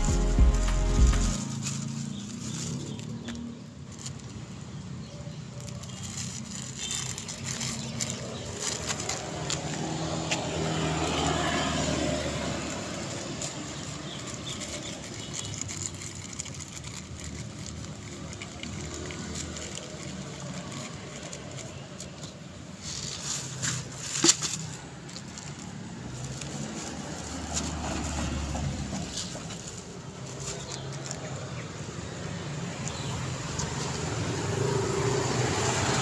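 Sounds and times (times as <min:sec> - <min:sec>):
cat crunching dry kibble: 0:00.6 - 0:35.9
vehicle passing: 0:06.5 - 0:15.2, 0:24.6 - 0:36.0.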